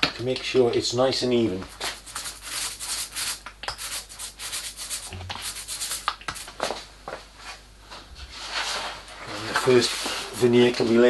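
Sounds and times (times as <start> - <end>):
roller rubbing glue on wood: 1.8 - 6.5, 9.3 - 11.0.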